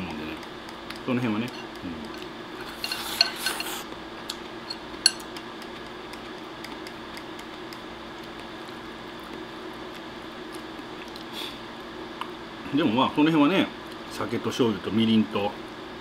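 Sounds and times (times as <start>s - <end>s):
chopsticks scraping ceramic bowl: 1.0s - 3.9s.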